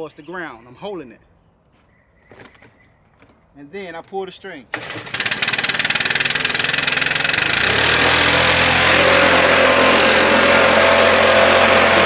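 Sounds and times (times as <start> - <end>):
leaf blower engine idling: 4.7 - 12.0.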